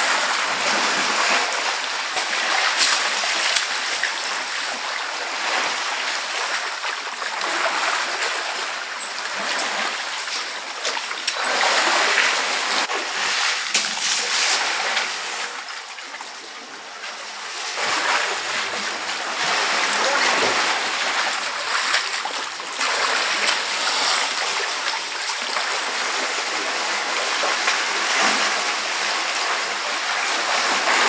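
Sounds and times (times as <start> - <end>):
elephants splashing in mud water: 7.3 - 15.5, 17.4 - 31.0.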